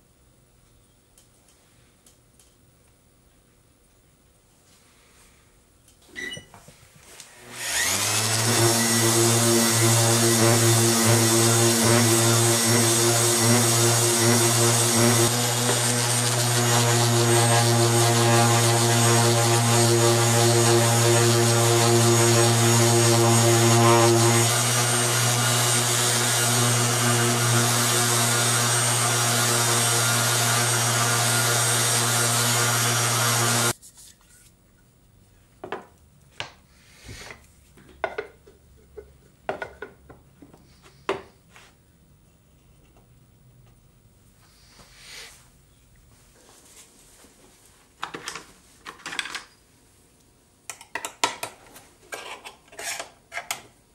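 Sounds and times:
orbital sander whirring: 7.3s - 33.8s.

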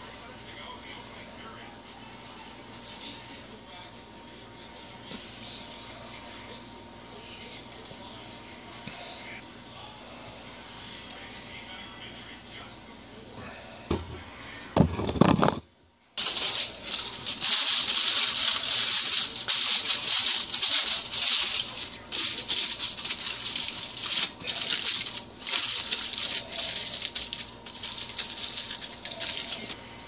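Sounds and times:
aluminium foil crinkling: 16.2s - 29.8s.

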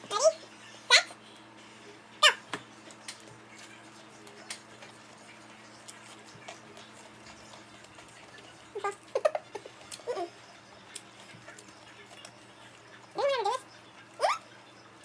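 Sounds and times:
chewing and small clicks: 2.8s - 13.2s.

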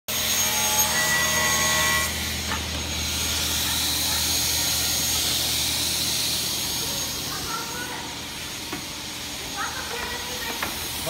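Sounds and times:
table saw cutting board: 0.1s - 7.2s
high saw whine: 0.1s - 11.0s.

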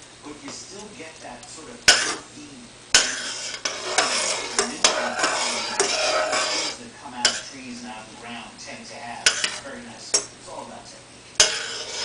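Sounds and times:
metal spoon scraping saucepan: 1.9s - 2.3s, 3.0s - 7.8s, 9.1s - 10.3s, 11.4s - 12.0s
spoon clinking against pan: 7.3s - 7.5s, 11.4s - 12.0s.

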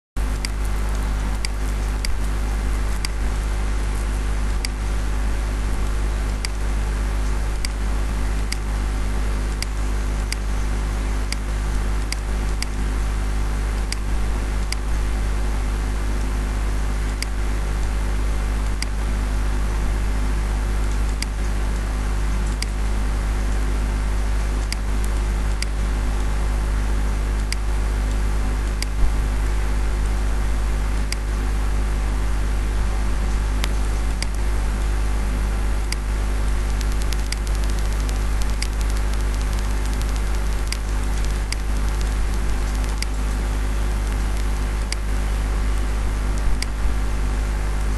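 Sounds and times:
loud low electrical hum and hiss: 0.2s - 47.9s
computer mouse clicking: 7.6s - 7.8s, 35.9s - 43.2s.

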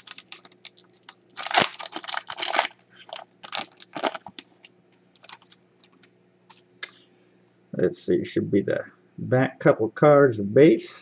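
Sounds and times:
wrapper crinkling: 0.0s - 6.1s.

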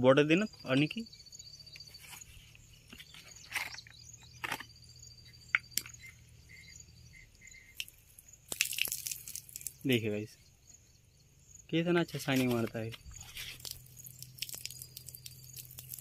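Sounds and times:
faint insect trill: 0.0s - 16.0s
handling clicks and knocks: 2.9s - 4.8s.

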